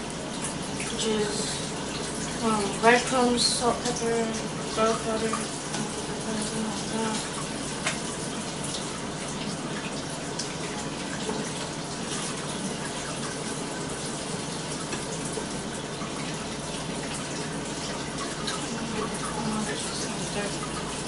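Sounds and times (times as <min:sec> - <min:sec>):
water running from tap: 0:00.0 - 0:21.0.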